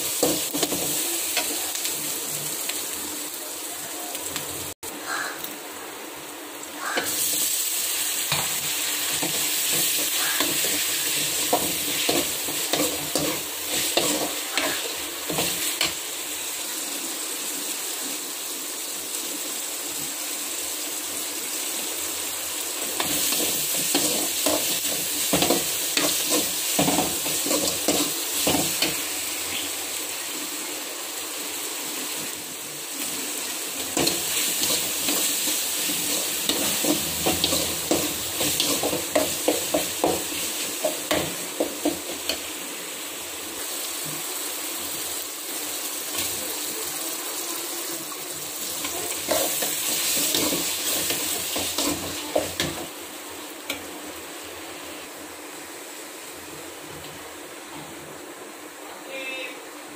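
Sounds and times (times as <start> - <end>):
vegetables sizzling in oil: 0.0 - 59.9
spoon scraping a pan: 8.3 - 16.0, 33.9 - 42.4.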